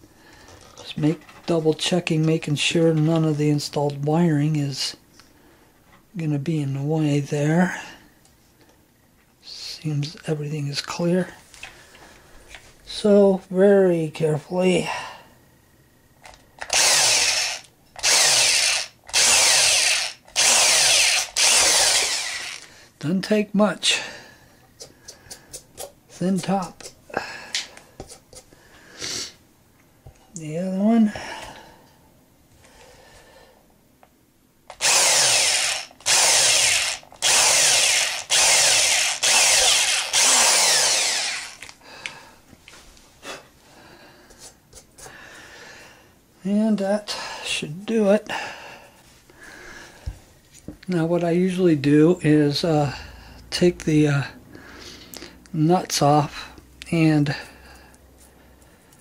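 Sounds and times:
electric drill boring wood: 0:16.6 - 0:22.7, 0:34.7 - 0:41.7.

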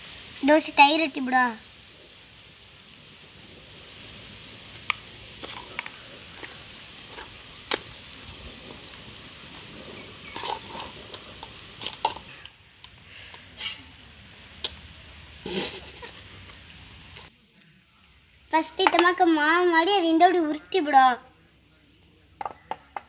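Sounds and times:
dough squelching in bowl: 0:04.9 - 0:12.4.

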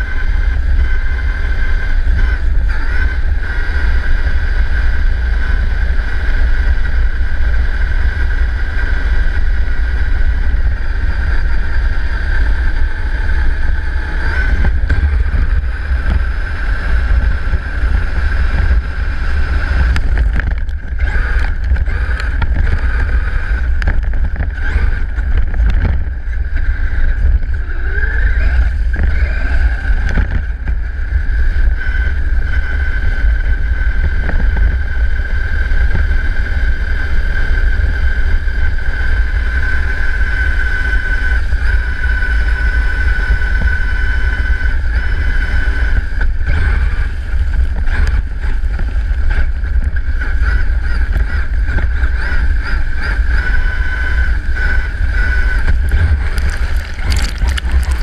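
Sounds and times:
rc truck motor whine: 0:00.0 - 0:58.0
tyres rumbling on gravel: 0:53.4 - 0:58.0.

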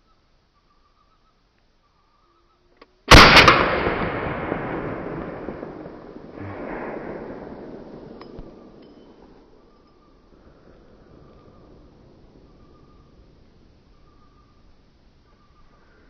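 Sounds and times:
gunshot with rolling echo: 0:03.1 - 0:09.7.

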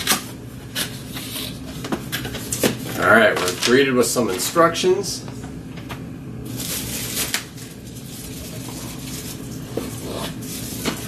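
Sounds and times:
steady low hum: 0:00.0 - 0:11.0
cardboard and paper rustling: 0:00.8 - 0:04.7, 0:06.5 - 0:11.0.

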